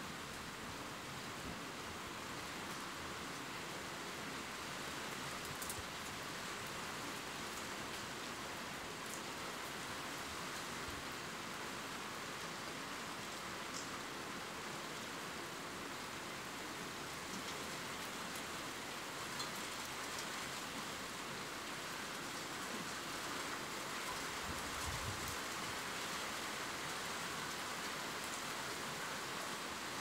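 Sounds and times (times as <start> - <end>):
steady rain falling: 0.0 - 30.0.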